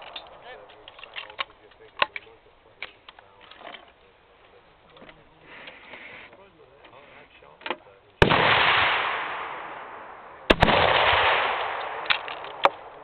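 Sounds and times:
rifle shots with echo: 8.2s - 13.0s.

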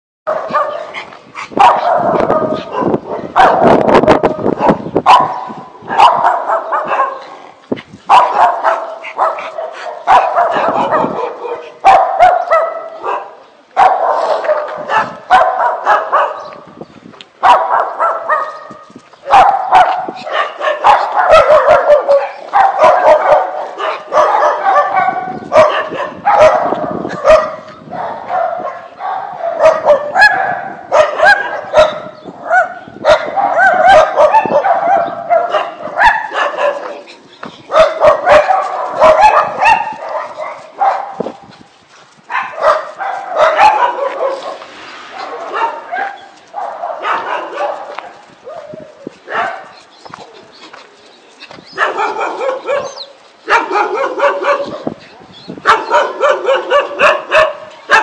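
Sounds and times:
small dog barking and yipping: 1.6s - 3.8s, 4.6s - 7.4s, 8.1s - 16.5s, 17.4s - 41.3s, 42.3s - 50.4s, 51.7s - 58.0s.

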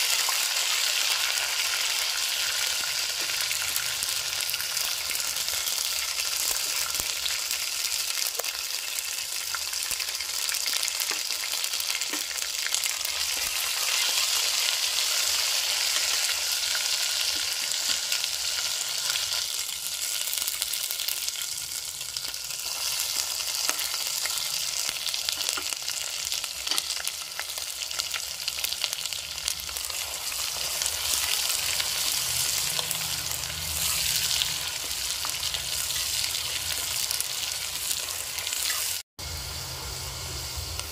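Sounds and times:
hot oil sizzling: 0.0s - 40.9s
oil crackles and pops: 8.0s - 13.9s.

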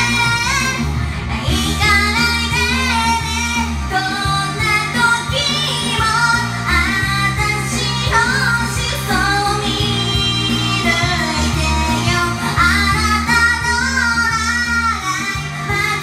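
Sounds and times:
high voice singing pop song: 0.0s - 16.0s
karaoke backing track: 0.0s - 16.0s.

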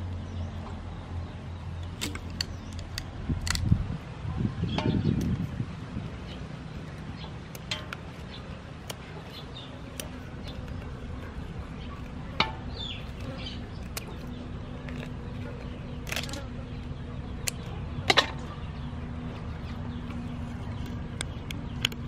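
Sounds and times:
steady low hum: 0.0s - 22.0s
scissors snipping shell: 7.5s - 16.5s.

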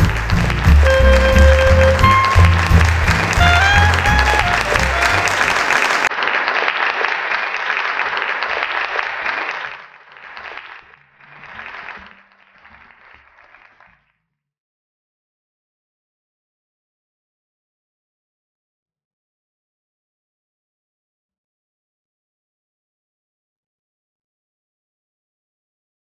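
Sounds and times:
background music melody: 0.0s - 5.7s.

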